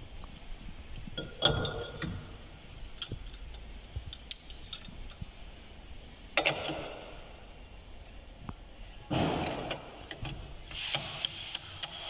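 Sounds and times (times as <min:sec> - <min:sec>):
metal tools clicking and clinking: 0:01.2 - 0:02.3, 0:02.9 - 0:05.2.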